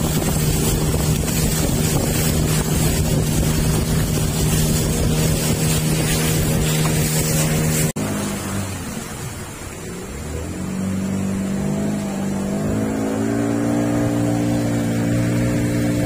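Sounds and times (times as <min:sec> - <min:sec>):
wind buffeting microphone: 0:00.0 - 0:08.0
boat motor humming: 0:00.0 - 0:16.0
water rushing past: 0:00.0 - 0:16.0.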